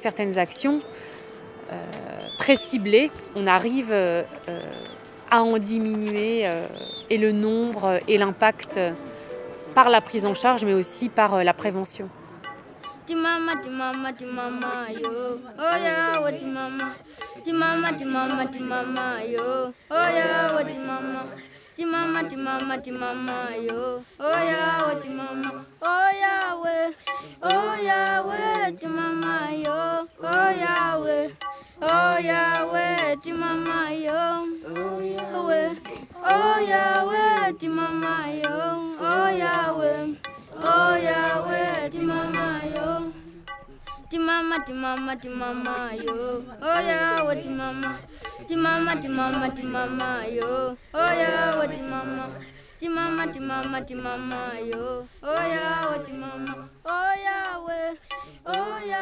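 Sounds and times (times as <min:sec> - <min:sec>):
light instrumental backing: 0:00.0 - 0:19.5
voices singing: 0:00.0 - 0:59.0.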